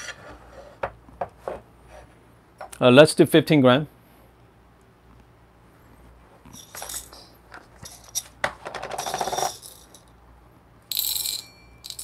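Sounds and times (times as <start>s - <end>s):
coffee beans rattling: 6.6s - 10.1s.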